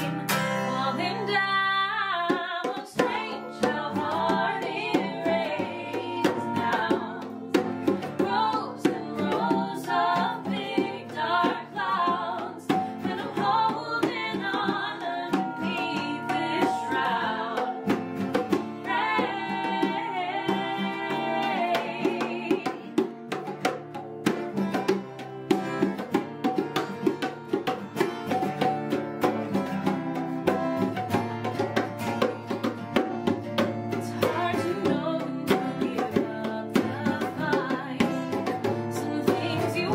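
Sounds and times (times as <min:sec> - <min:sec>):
bongos: 0:00.0 - 0:39.9
strummed acoustic guitars: 0:00.0 - 0:39.9
woman singing: 0:00.6 - 0:23.1, 0:33.9 - 0:39.9.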